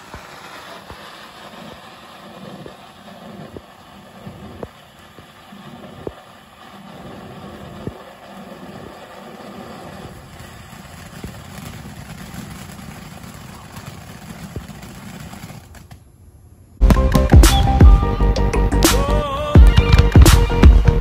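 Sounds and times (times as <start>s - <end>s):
firework fountain hissing: 0.0s - 16.0s
sharp firework pops: 0.0s - 16.0s.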